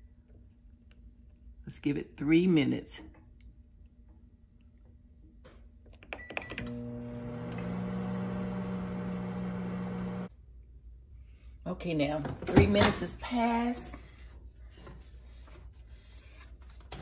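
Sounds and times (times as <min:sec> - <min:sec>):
microwave oven humming: 0:06.2 - 0:10.3.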